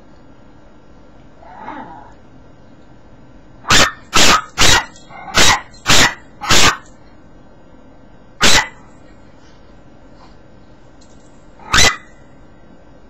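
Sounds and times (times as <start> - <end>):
small dog barking: 3.6 - 6.9, 8.4 - 8.8, 11.6 - 12.2.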